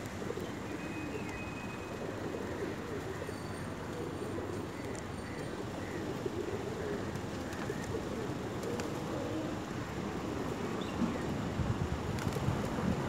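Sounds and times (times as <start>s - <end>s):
pigeons cooing: 0.1s - 1.2s, 1.9s - 9.6s.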